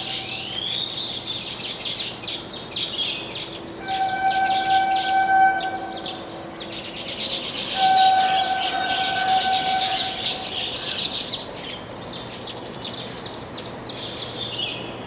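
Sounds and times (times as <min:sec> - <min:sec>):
steady pitched drone: 0:00.0 - 0:01.0
birds chattering in high chirps: 0:00.0 - 0:15.0.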